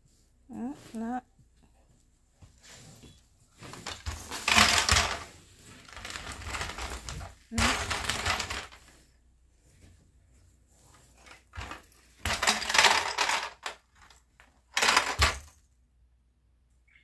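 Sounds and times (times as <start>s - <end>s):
plastic blocks rattling in toy: 3.7s - 9.0s, 11.2s - 15.6s.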